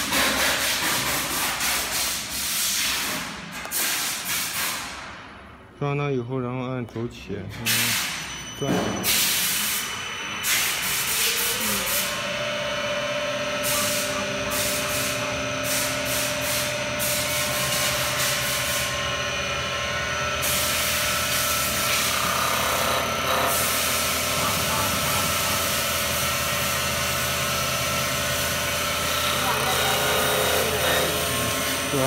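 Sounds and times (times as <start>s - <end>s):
lathe spindle motor whine: 8.4s - 32.0s.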